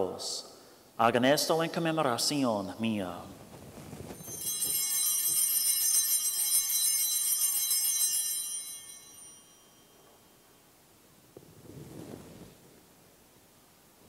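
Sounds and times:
small bells ringing: 0:04.2 - 0:10.7.

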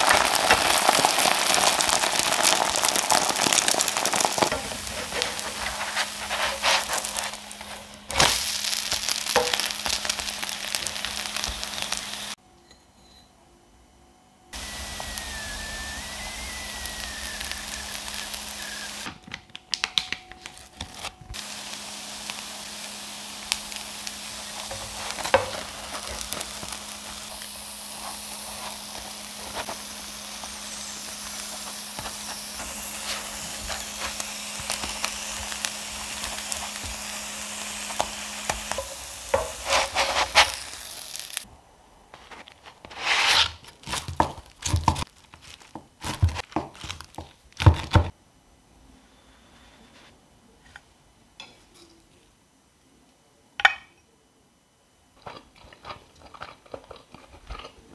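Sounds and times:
pancake sizzling in oil: 0:00.0 - 0:12.4, 0:14.5 - 0:19.1, 0:20.7 - 0:41.5.

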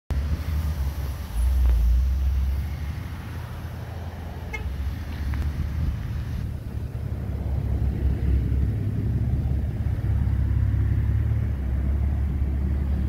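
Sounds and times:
low rumble of vehicles: 0:00.1 - 0:13.0
short car horn toot: 0:04.5 - 0:04.8.

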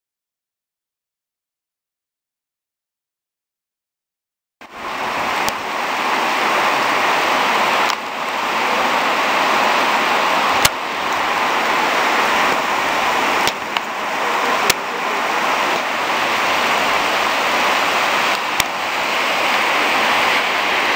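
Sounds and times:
torrential rain pouring: 0:04.6 - 0:20.9.

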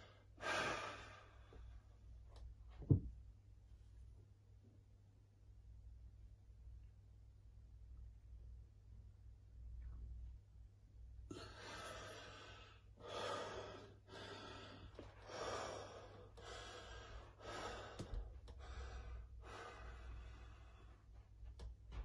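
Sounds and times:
heavy fast breathing: 0:11.3 - 0:21.1.

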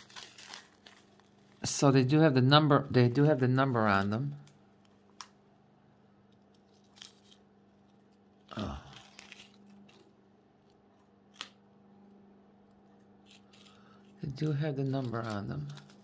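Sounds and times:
plastic bag rustling and clicking: 0:00.0 - 0:01.6
plastic bag crinkle: 0:00.0 - 0:02.2, 0:06.6 - 0:10.2, 0:13.2 - 0:16.0
faint steady hum: 0:00.0 - 0:16.0.

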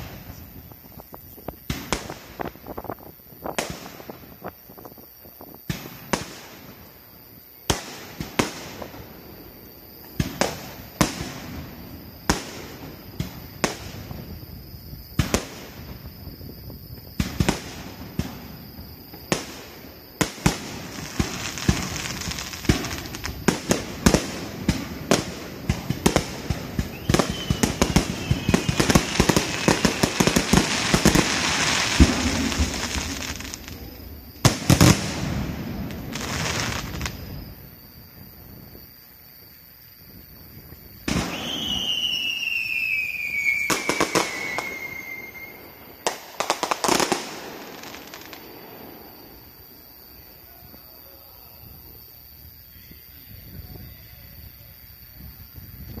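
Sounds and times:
fireworks bursts and crackling: 0:00.0 - 0:39.2, 0:40.0 - 0:51.1.

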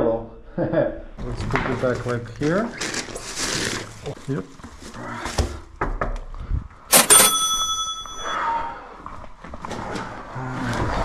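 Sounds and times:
lift arrival chime: 0:06.9 - 0:08.6.

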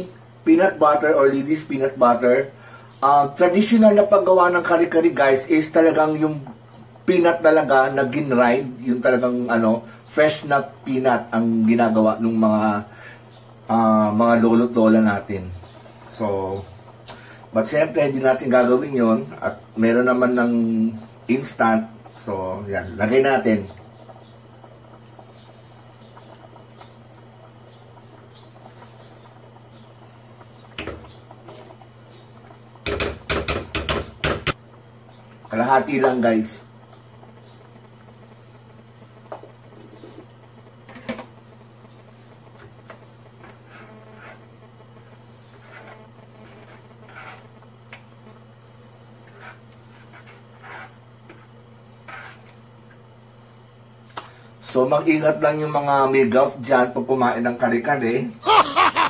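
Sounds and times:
steady low hum: 0:00.0 - 0:59.0
simmering pot patter: 0:00.1 - 0:54.6
spoon scraping in a pot: 0:43.4 - 0:44.5, 0:45.4 - 0:48.0, 0:49.2 - 0:52.6.

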